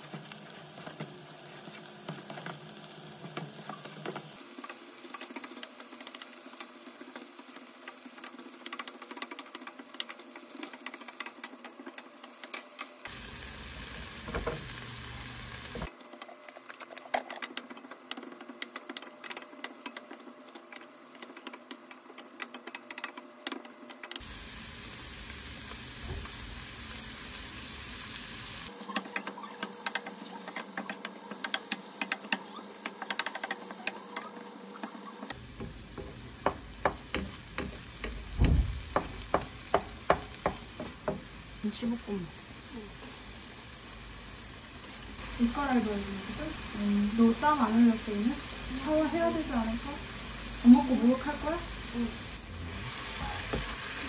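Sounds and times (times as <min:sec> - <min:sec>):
rice sizzling in a frying pan: 0:00.0 - 0:54.0
spatula knocking on pan: 0:35.5 - 0:41.3.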